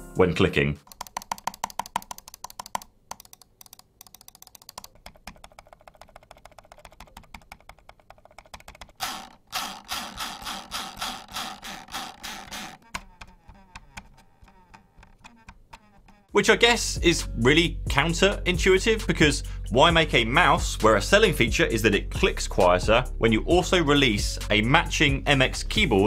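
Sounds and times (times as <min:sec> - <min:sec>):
mouse buttons clicking: 0:00.8 - 0:09.0, 0:12.3 - 0:16.3.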